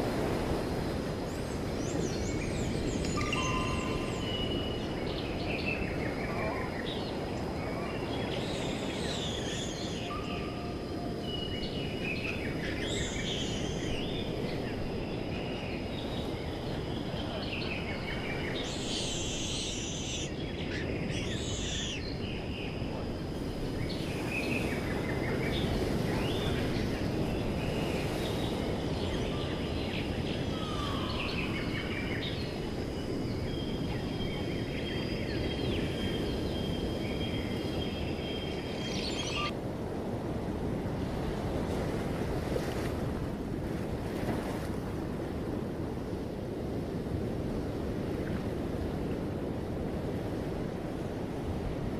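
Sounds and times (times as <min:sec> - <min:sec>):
wild birds chirping: 0:01.3 - 0:39.5.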